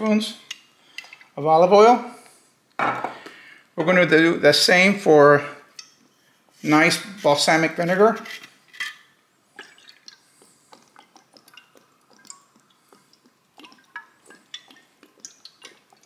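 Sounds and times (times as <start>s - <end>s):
vinegar dripping and splashing: 9.5s - 16.0s.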